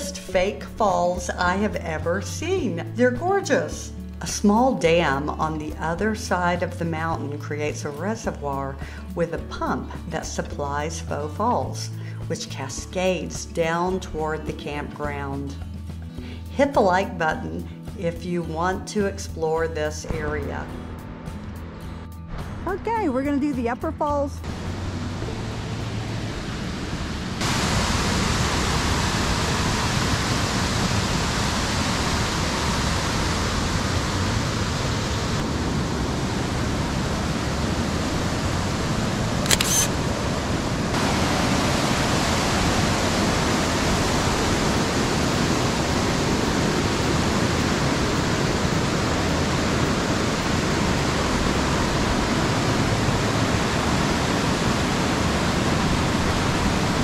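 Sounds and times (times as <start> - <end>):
waterfall rushing: 24.5 - 57.0
sharp click: 39.5 - 39.9.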